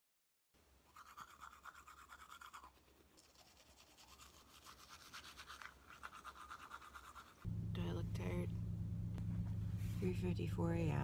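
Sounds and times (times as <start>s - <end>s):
toothbrush scrubbing teeth: 0.9s - 7.5s.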